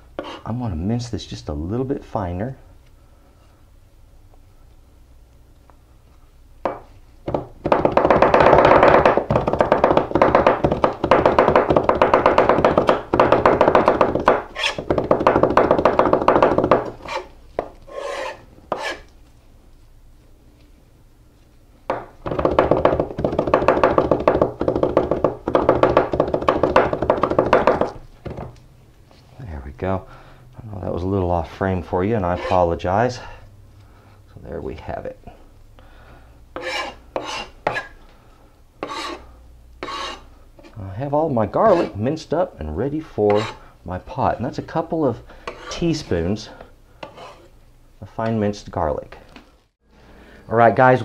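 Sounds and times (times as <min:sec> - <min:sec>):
knife chopping on plastic board: 0:06.7 - 0:19.0, 0:21.9 - 0:28.5.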